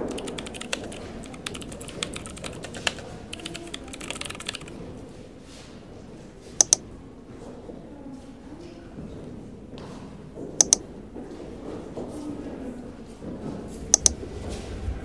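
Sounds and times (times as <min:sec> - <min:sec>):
typing on computer keyboard: 0:00.0 - 0:04.8, 0:06.6 - 0:06.8, 0:10.6 - 0:10.8, 0:14.0 - 0:14.2
sharp loud clicks: 0:06.6 - 0:06.8, 0:10.6 - 0:10.8.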